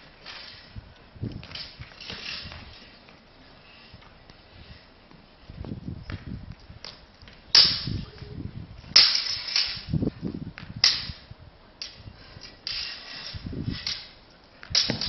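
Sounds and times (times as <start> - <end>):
swords clashing: 9.0 - 9.9.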